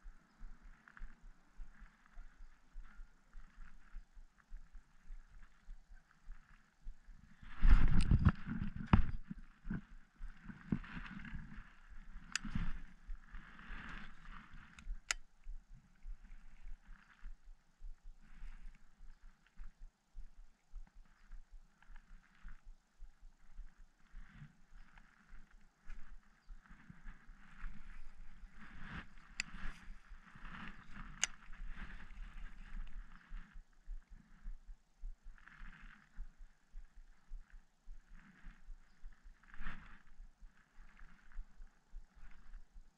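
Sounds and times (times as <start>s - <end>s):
sharp clicks: 30.7s - 33.1s.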